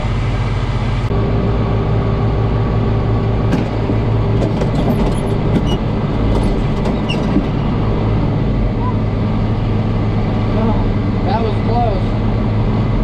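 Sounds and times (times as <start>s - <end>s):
tractor engine droning: 0.0s - 13.0s.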